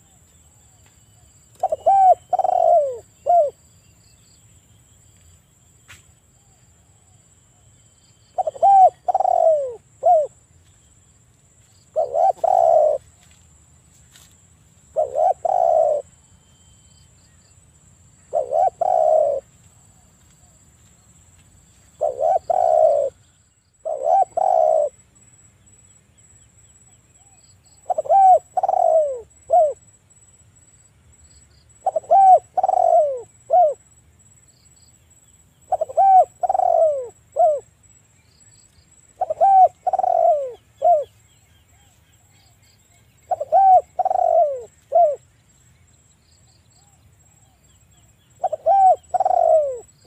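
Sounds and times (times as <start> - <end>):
dove cooing: 1.5 - 3.6, 8.3 - 10.4, 11.9 - 13.2, 14.9 - 16.2, 18.3 - 20.6, 22.0 - 23.2, 23.8 - 25.0, 27.2 - 29.8, 31.8 - 33.8, 35.7 - 37.7, 39.2 - 41.9, 43.3 - 45.2, 48.4 - 50.0.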